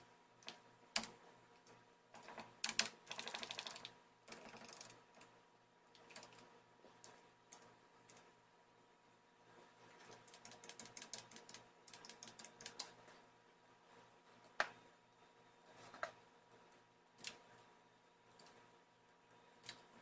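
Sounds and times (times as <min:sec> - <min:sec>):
faint steady hum: 0:00.0 - 0:20.0
typing on computer keyboard: 0:00.4 - 0:05.3, 0:06.0 - 0:08.2, 0:10.0 - 0:13.0.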